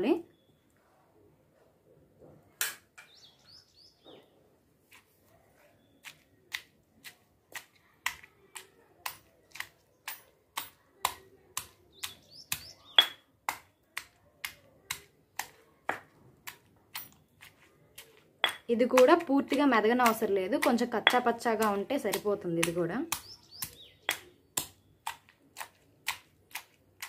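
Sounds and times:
stone pestle pounding in mortar: 9.0 - 17.6, 18.4 - 26.8.

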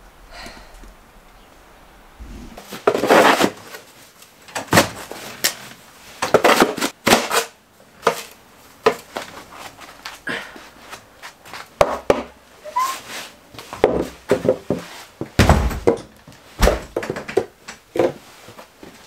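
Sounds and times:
heavy thuds: 16.6 - 17.1.

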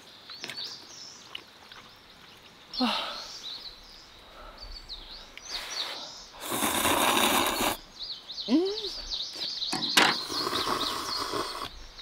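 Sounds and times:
small birds chirping: 0.0 - 12.0
slurping noodles: 6.4 - 7.8, 10.1 - 11.7.

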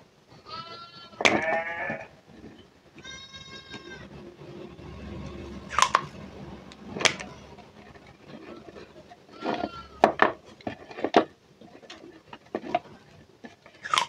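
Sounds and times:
goat bleating: 0.4 - 2.2, 3.0 - 4.2, 7.0 - 7.6, 8.3 - 10.2.

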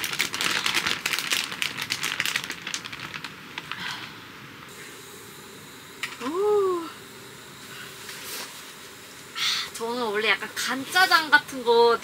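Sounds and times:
plastic bag crinkling: 0.0 - 4.0.

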